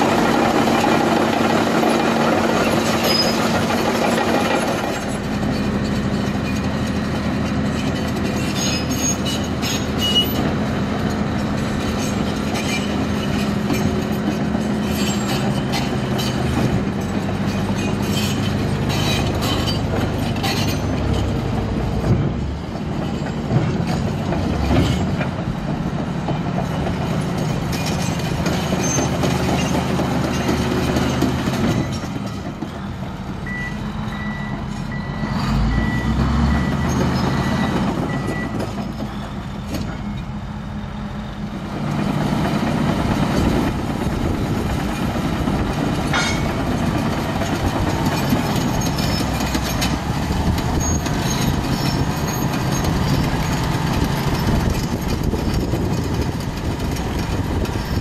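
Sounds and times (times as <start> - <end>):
bulldozer diesel engine running: 0.0 - 58.0.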